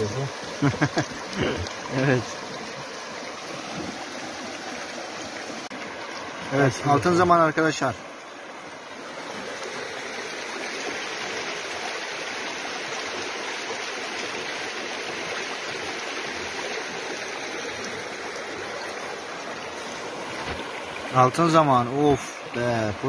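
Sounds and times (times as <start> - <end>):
creek rushing: 0.0 - 23.0.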